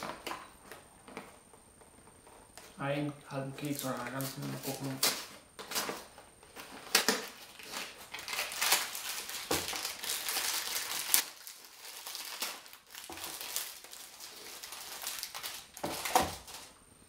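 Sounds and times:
packaging crinkling and tearing: 0:03.5 - 0:16.8
packaging sharp snaps: 0:03.7 - 0:11.4.

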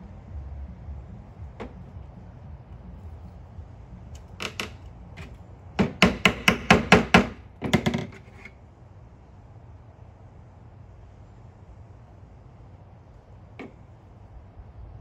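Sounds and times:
mallet tapping wooden dowel: 0:05.8 - 0:07.3.

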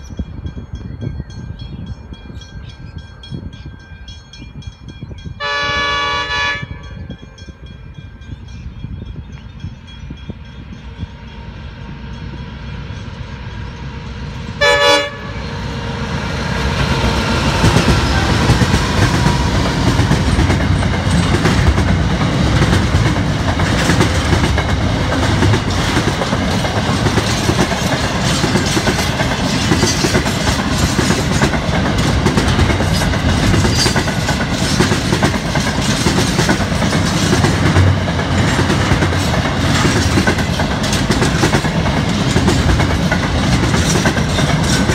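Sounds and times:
train wheels rumbling on rail: 0:00.0 - 0:44.9
train horn blast: 0:05.4 - 0:07.3, 0:14.5 - 0:16.2.

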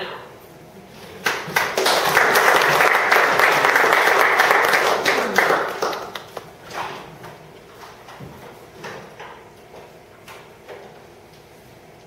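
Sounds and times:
audience applauding: 0:01.2 - 0:06.6.

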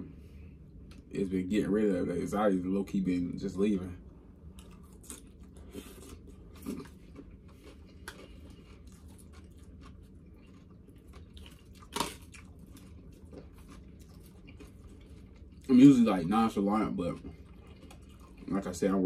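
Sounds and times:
person chewing salad: 0:04.4 - 0:19.0.

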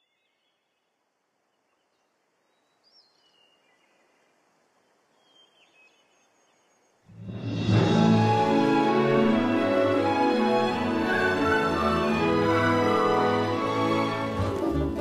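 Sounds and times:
faint countryside ambience: 0:00.0 - 0:07.2
loud theme music: 0:07.2 - 0:15.0.

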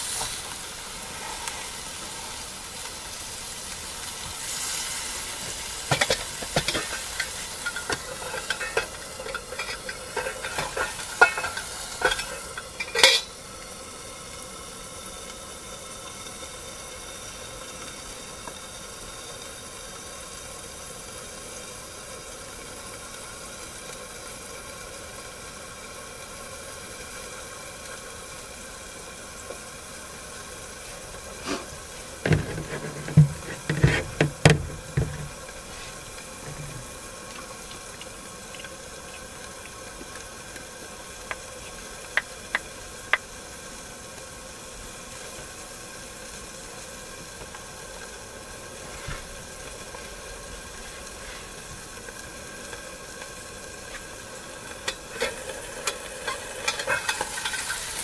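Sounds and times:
camp stove hissing: 0:00.0 - 0:58.0
pot letting off steam: 0:00.0 - 0:58.0
knocking and clattering: 0:32.2 - 0:35.4.

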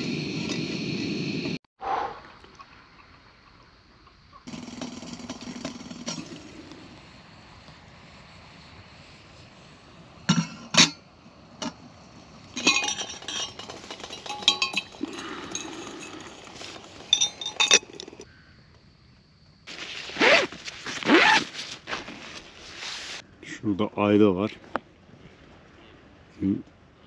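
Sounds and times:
metal cookware clinking: 0:12.6 - 0:16.2
scraping rustle: 0:19.7 - 0:23.2.

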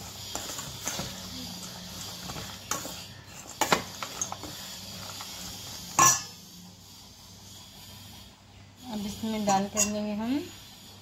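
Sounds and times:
spoon scraping in steel bowl: 0:00.0 - 0:06.4, 0:09.1 - 0:10.2
spoon clinking on bowl: 0:09.5 - 0:10.0.

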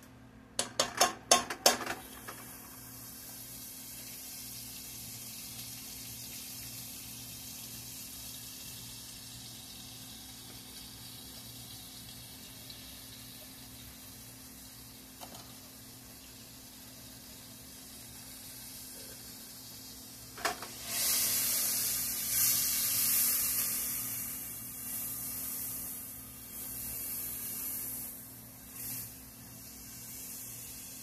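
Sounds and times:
food sizzling in frying pan: 0:01.2 - 0:31.0.

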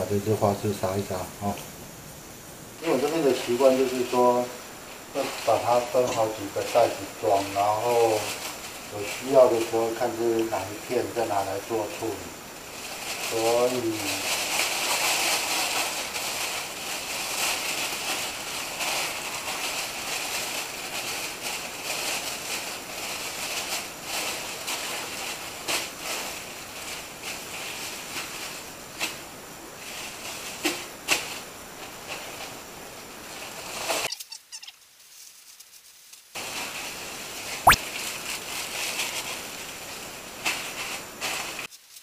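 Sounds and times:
plastic bags rustling: 0:05.1 - 0:29.2.

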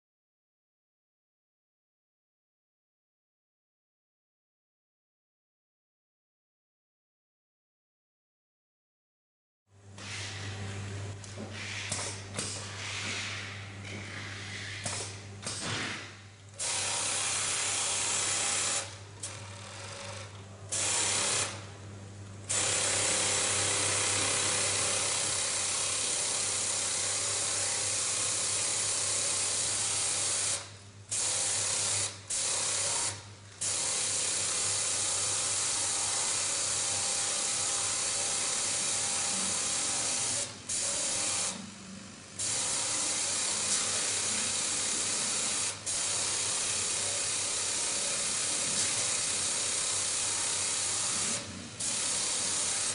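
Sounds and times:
sewing machine whirring: 0:16.5 - 0:21.7, 0:22.4 - 0:52.9.

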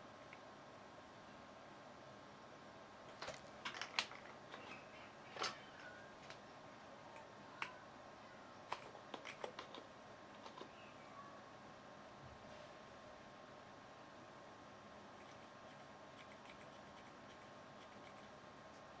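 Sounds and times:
faint steady hum: 0:00.0 - 0:19.0
keyboard keys clicking: 0:08.7 - 0:10.7.

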